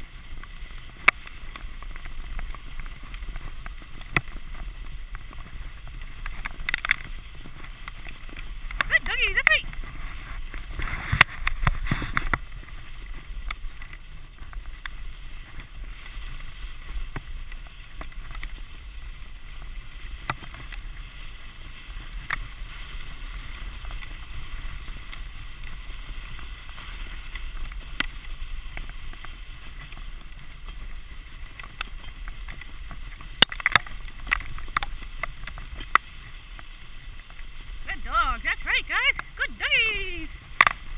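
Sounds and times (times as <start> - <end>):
sled runners hissing over snow: 0.0 - 40.9
wind rumble on microphone: 9.6 - 37.9.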